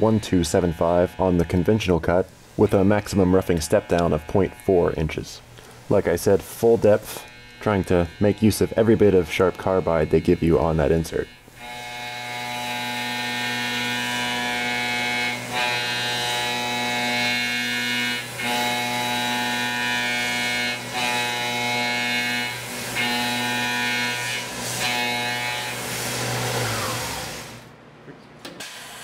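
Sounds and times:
mill cutter whine: 5.9 - 27.7.

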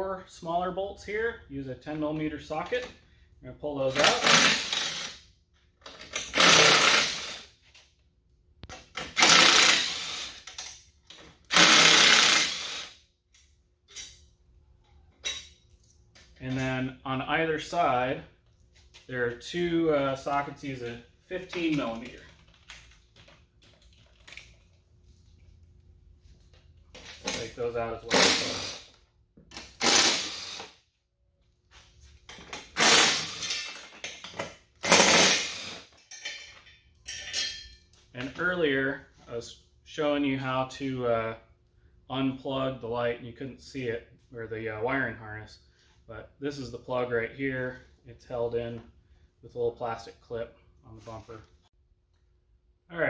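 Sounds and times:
cordless driver spinning out bolts: 6.0 - 7.5, 9.0 - 10.6, 11.5 - 13.0, 28.1 - 28.9, 29.5 - 30.8, 32.7 - 33.8, 34.8 - 35.9
tool and parts clattering: 32.2 - 38.4.

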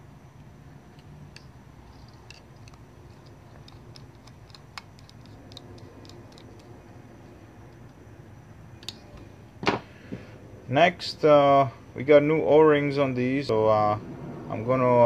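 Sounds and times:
low steady hum: 0.0 - 15.0
screwdriver clicking on metal jets: 0.9 - 6.9.

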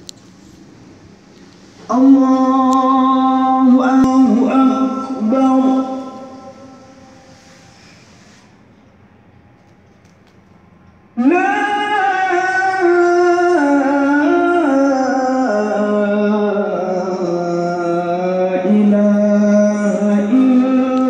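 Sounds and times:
person chanting: 1.8 - 7.4, 11.2 - 21.0.

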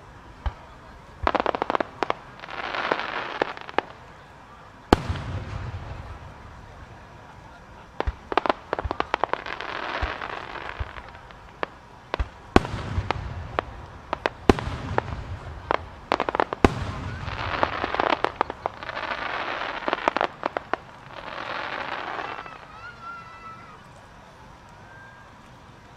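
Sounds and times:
fireworks bangs and pops: 0.0 - 24.8
heavy firework booms: 4.9 - 22.6.

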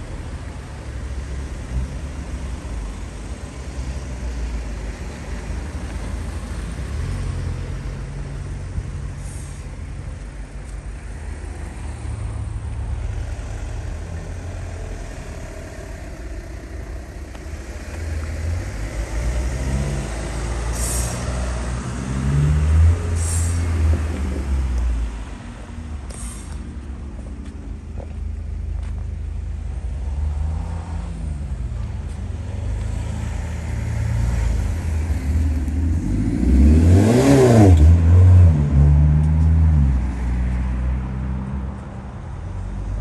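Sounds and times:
vehicle engine rumbling: 0.0 - 43.0
short hisses: 26.1 - 26.6.

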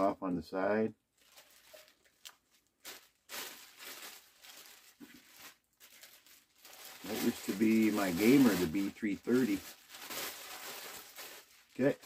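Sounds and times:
cap and paper tag rustling: 1.3 - 3.6, 7.0 - 9.7.

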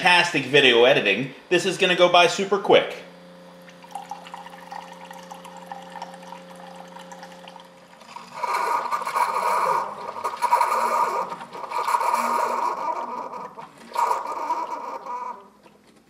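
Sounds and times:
coffee brewer humming: 0.0 - 16.0
liquid pouring into mug: 3.6 - 12.1.

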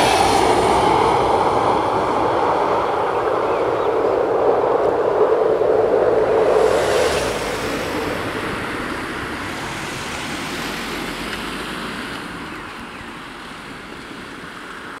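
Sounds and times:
diesel railcar running: 0.0 - 5.1.

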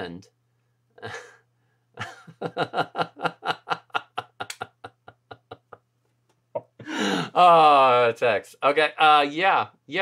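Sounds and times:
man laughing hard: 1.0 - 1.4, 2.0 - 5.9.

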